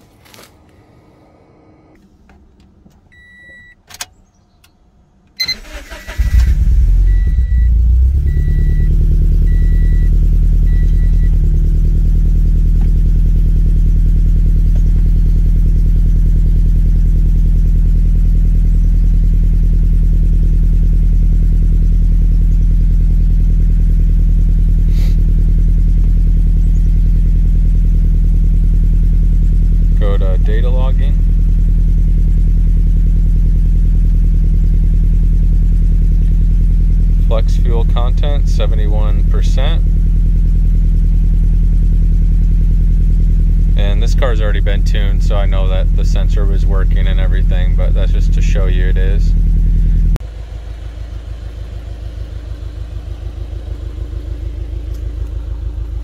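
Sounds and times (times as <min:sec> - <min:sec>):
car engine cranking and idling: 0:00.0 - 0:56.0.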